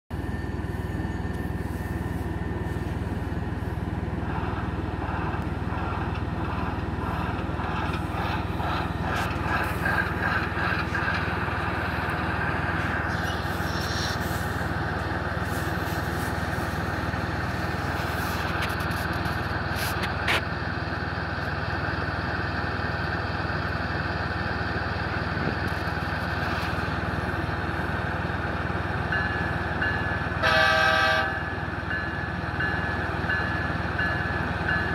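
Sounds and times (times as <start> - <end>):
locomotive engine through small speaker: 1.3 - 28.8.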